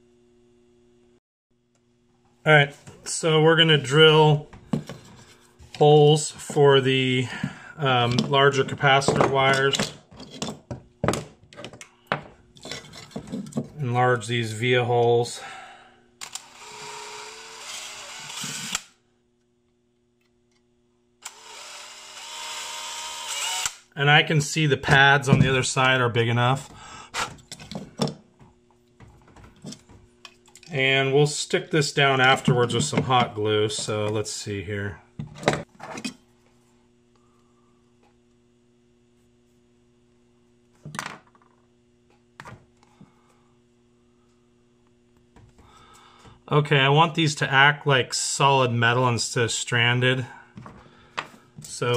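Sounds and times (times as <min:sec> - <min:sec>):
faint electrical hum: 0:00.0 - 0:51.9
power drill whining: 0:16.2 - 0:19.0, 0:21.2 - 0:23.9.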